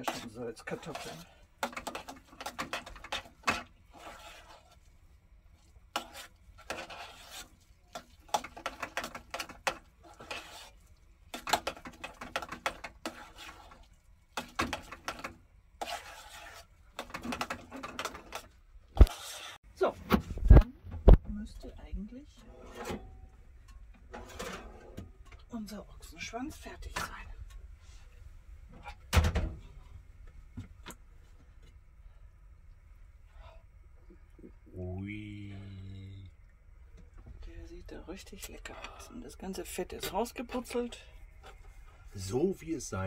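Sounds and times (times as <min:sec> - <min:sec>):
potato masher strokes: 0:00.0 - 0:04.8, 0:05.9 - 0:15.2, 0:15.8 - 0:19.6.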